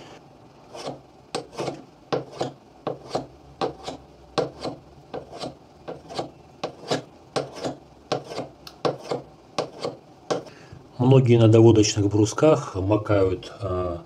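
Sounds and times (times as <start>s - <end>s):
chisel scraping on sandpaper: 0.7s - 10.5s.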